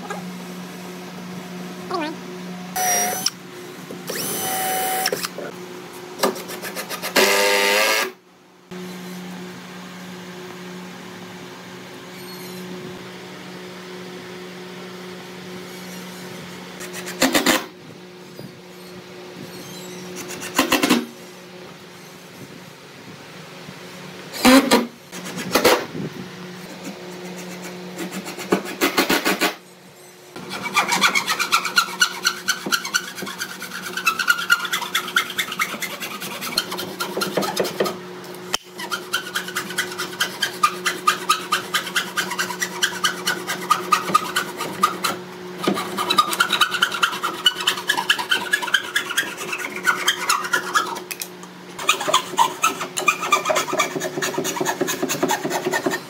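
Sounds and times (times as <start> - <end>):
hand saw cutting wood: 6.2 - 7.4, 20.2 - 21.1, 26.7 - 29.6, 30.4 - 38.0, 38.8 - 51.2, 51.8 - 56.0.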